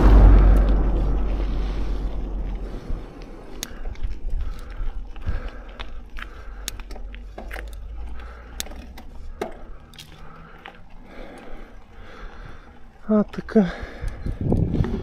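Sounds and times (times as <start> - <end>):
wind rumble on microphone: 0.0 - 6.1, 13.9 - 15.0
bike chain clicks and rattles: 3.6 - 15.0.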